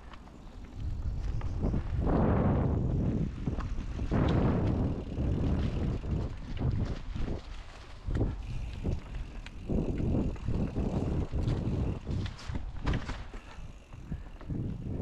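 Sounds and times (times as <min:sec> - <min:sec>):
bike tyre rumble: 0:00.0 - 0:15.0
bike knocking over bumps: 0:08.2 - 0:14.6.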